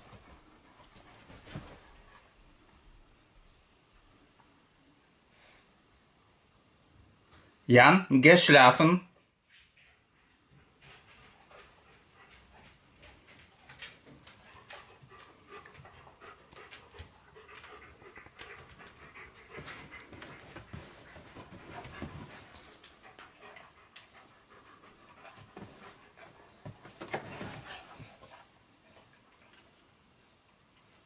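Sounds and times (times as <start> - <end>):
dog panting: 0.0 - 2.7, 9.8 - 29.6.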